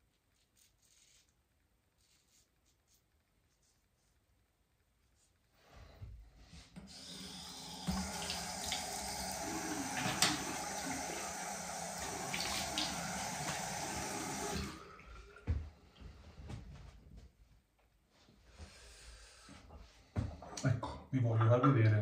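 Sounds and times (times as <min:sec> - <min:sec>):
tap water running into sink: 0:06.8 - 0:15.6.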